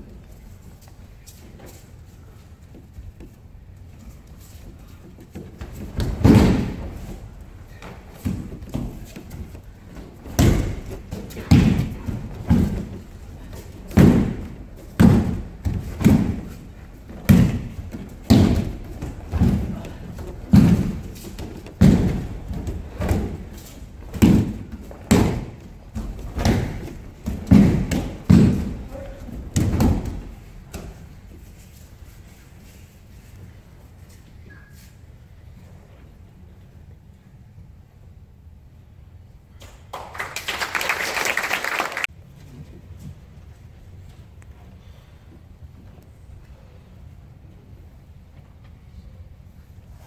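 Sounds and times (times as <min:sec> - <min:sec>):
bodies thudding on mats: 0:04.7 - 0:31.1.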